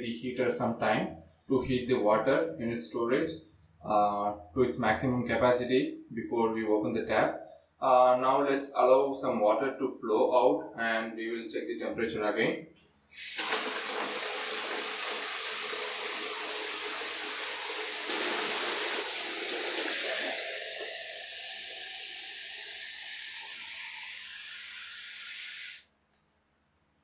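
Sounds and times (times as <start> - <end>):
tap water splashing into bucket: 13.2 - 22.8.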